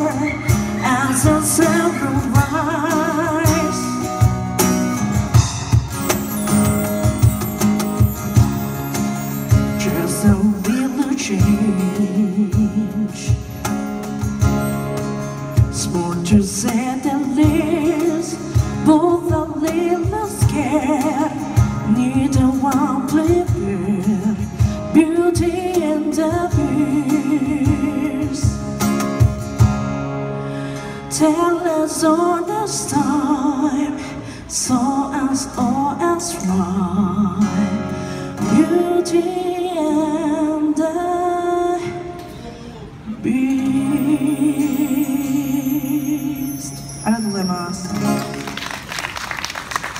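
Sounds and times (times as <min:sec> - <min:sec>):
cajon: 0:00.0 - 0:29.9
acoustic guitar: 0:00.0 - 0:49.9
person singing wavering line: 0:43.3 - 0:47.9.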